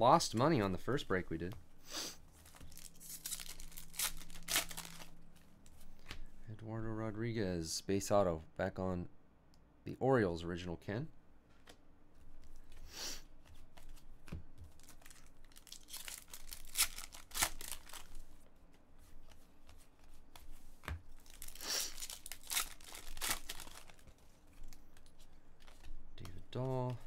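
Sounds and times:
wrapper crinkling: 2.4 - 5.3, 14.8 - 18.2, 21.2 - 25.9
foil pack tearing: 21.3 - 24.0.

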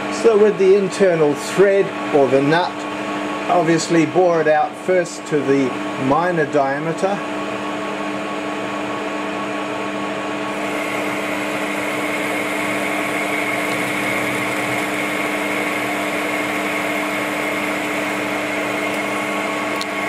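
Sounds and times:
lathe machine hum: 10.3 - 20.0
high machine whine: 10.4 - 20.0.

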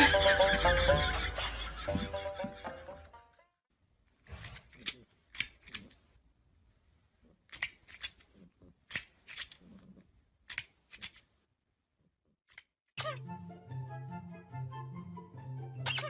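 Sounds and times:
plastic grabber toy clacking: 7.5 - 9.7.

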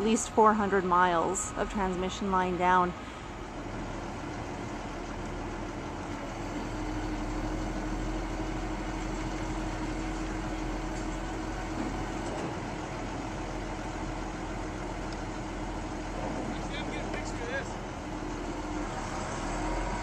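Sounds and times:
crane engine humming: 0.0 - 20.0.

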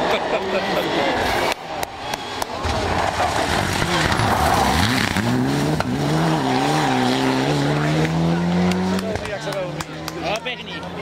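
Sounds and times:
car sliding on gravel: 2.6 - 7.9
car engine revving hard: 2.9 - 10.2.

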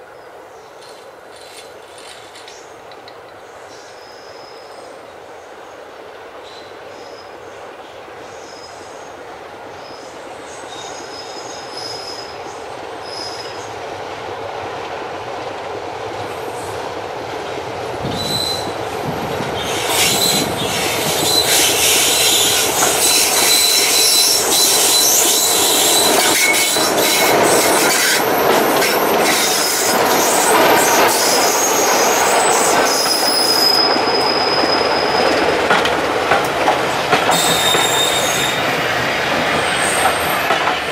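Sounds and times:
diesel locomotive hauling train: 0.0 - 40.9
wheels clattering over rail joints: 35.2 - 40.9.

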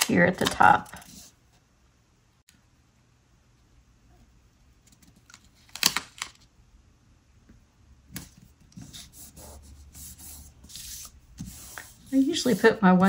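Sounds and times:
sticker sheet rustling: 8.2 - 13.0.

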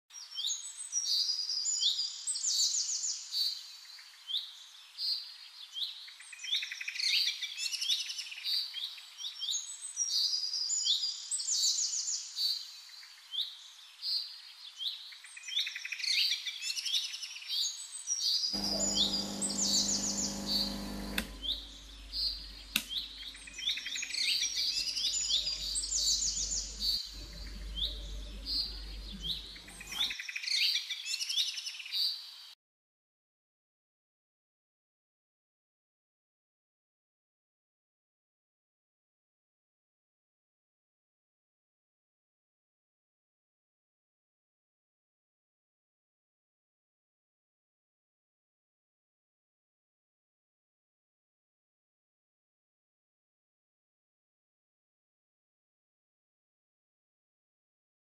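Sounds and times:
songbirds chirping: 0.2 - 32.5
low mechanical buzz: 18.6 - 30.1.

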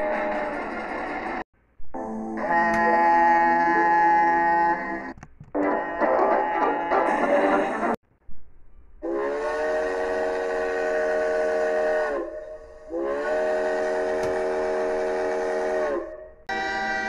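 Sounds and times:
steam locomotive chime whistle: 9.0 - 17.0.

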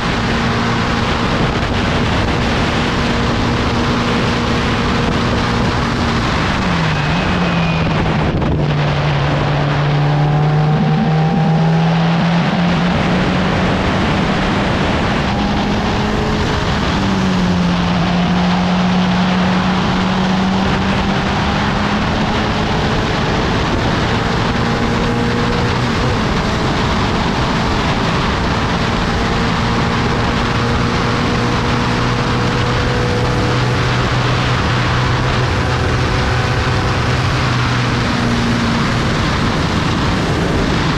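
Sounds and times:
race car engine running hard: 0.0 - 40.9
wind noise: 0.0 - 40.9.

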